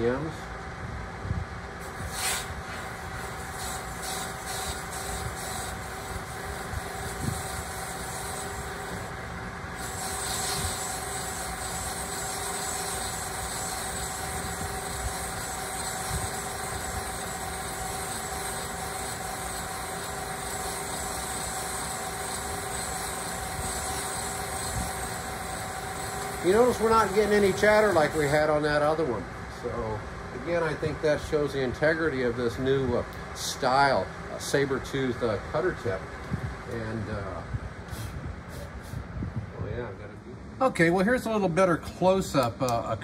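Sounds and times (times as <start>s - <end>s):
cutting machine running: 3.1s - 28.6s.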